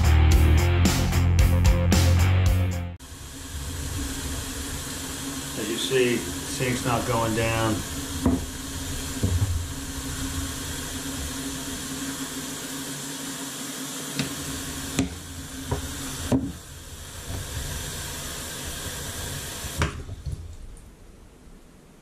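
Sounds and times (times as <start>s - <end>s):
faucet running into sink water: 3.1s - 20.6s.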